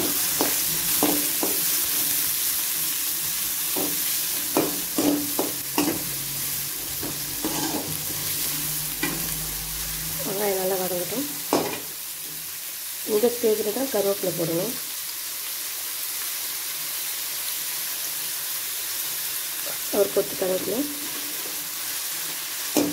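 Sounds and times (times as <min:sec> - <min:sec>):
onions sizzling in hot oil: 0:00.0 - 0:22.9
metal spatula scraping a pan: 0:03.7 - 0:10.5, 0:20.9 - 0:22.9.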